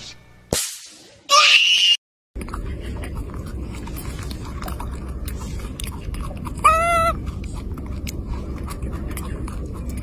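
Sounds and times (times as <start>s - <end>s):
steady low rumble: 2.4s - 10.0s
baby monkey high call: 6.6s - 7.2s.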